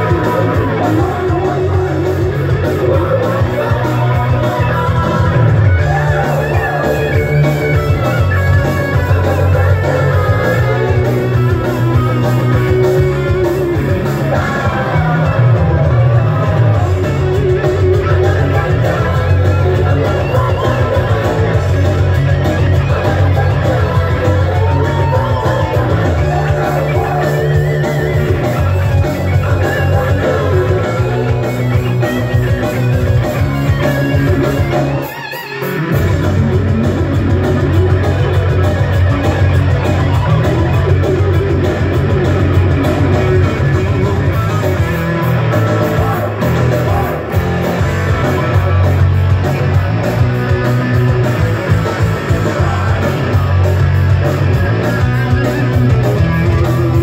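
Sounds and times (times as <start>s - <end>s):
electric guitar: 0.0s - 57.0s
heavy metal band playing live: 0.0s - 57.0s.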